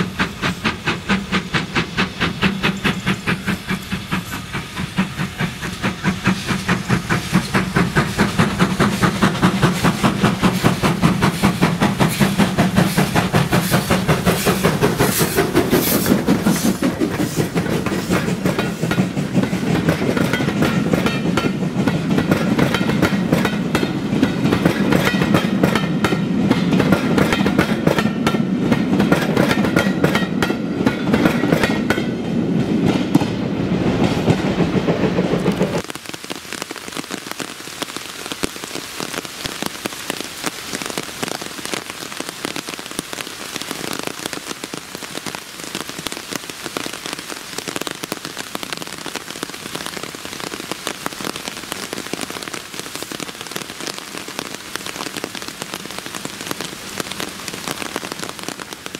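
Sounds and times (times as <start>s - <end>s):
steam locomotive exhaust beat: 0.0s - 35.9s
train wheels clicking over rail joints: 0.0s - 35.9s.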